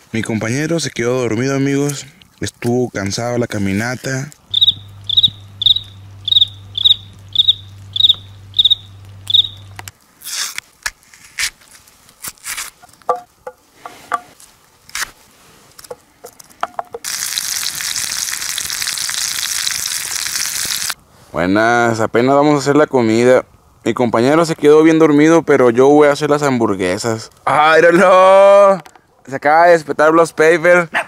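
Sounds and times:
cricket chirping: 4.5 - 9.9
low hum: 4.5 - 9.9
food sizzling in a pan: 17.0 - 21.0.

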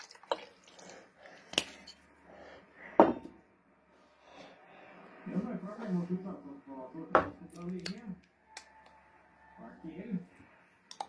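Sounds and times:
liquor pouring into glass: 0.0 - 1.0.

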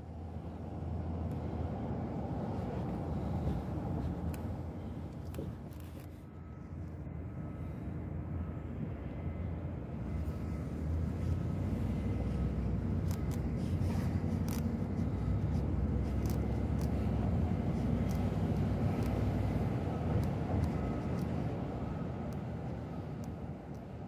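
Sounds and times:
low rumble of street traffic: 0.0 - 24.0
faint clicks and ticks: 13.0 - 21.6, 22.2 - 24.0.

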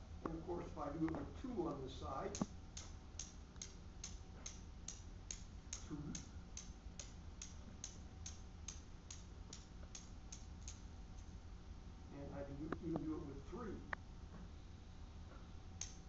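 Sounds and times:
steel balls clicking together: 2.3 - 11.3.

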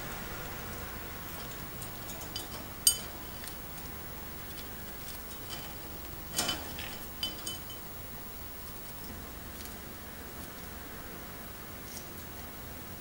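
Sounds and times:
beak clinking against plate: 1.3 - 3.6, 4.4 - 7.9.

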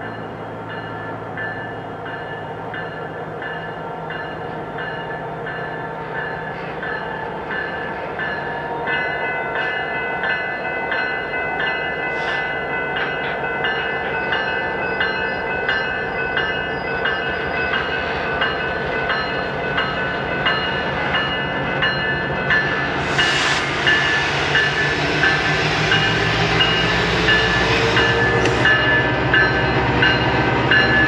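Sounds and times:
locomotive bell ringing: 0.0 - 31.0
diesel locomotive engine humming: 9.9 - 31.0.

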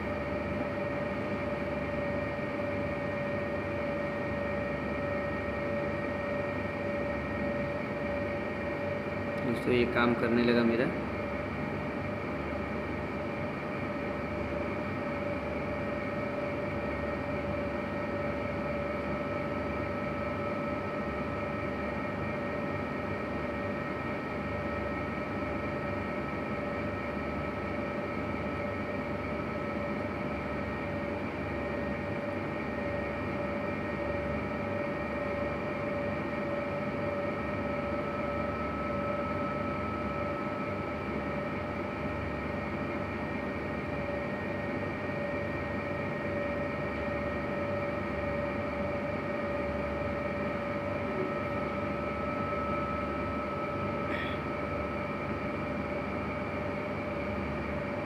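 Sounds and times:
steady machine hum: 0.0 - 58.0.

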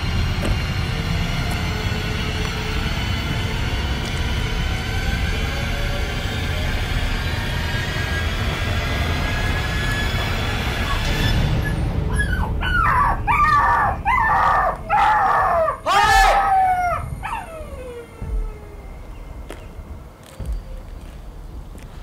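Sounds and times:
dog yelping: 10.8 - 18.8.

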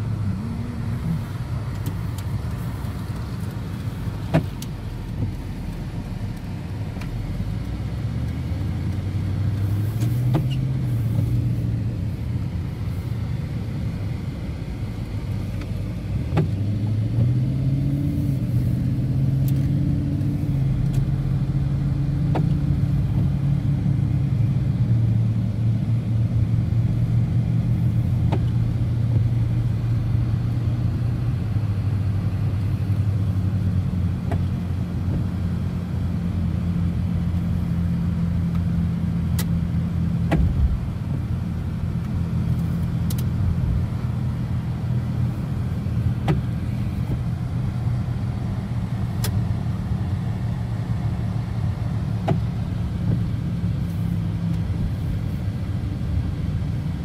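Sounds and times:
car engine hum: 0.0 - 57.0
road noise: 0.0 - 57.0
faint sharp clicks: 42.0 - 43.3.

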